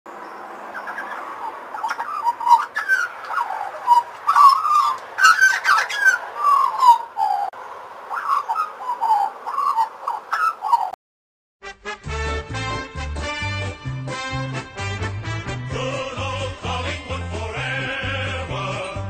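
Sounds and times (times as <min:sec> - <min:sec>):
magpie warbling song: 0:00.7 - 0:11.0.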